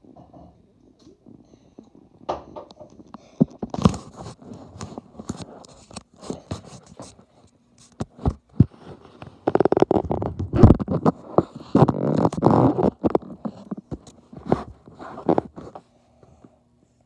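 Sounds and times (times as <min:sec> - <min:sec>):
phone handling scrapes and knocks: 0:02.6 - 0:15.8.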